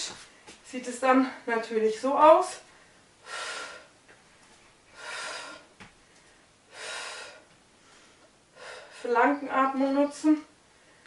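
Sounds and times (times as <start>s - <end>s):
woman breathing hard: 2.7s - 4.0s, 4.9s - 9.1s.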